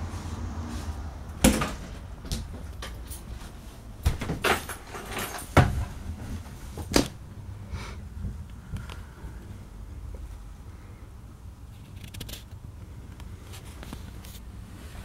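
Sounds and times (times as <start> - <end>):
knocks and clunks inside trailer: 1.3 - 7.3
low steady rumble: 5.2 - 15.0.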